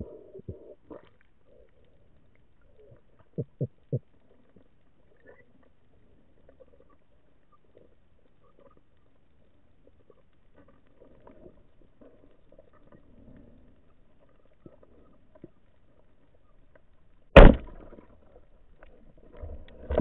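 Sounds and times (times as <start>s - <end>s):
faint underwater clicks: 0.3s - 20.0s
speargun firing underwater: 17.4s - 18.0s.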